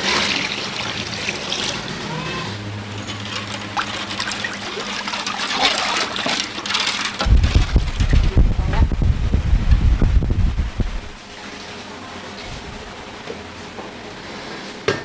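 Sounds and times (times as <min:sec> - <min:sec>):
liquid trickling and pouring: 0:00.0 - 0:02.0, 0:02.9 - 0:08.3
low steady hum: 0:00.0 - 0:14.2.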